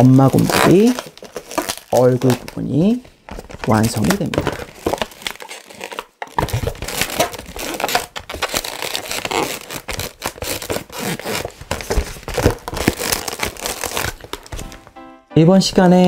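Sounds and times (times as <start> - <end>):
balloons squeaking and rubbing: 0.0 - 14.8.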